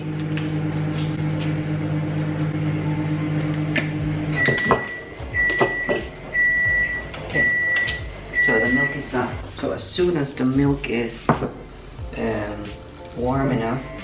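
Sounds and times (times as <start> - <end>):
microwave oven humming: 0.0 - 9.4
microwave end beep: 4.3 - 9.3.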